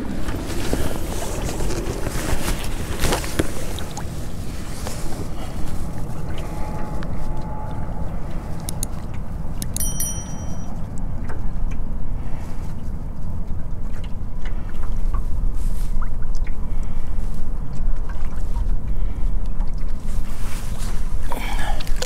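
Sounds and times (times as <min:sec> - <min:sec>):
wind buffeting microphone: 0:00.0 - 0:09.7
faint water splashes: 0:00.0 - 0:22.0
short ringing chime: 0:06.5 - 0:10.9.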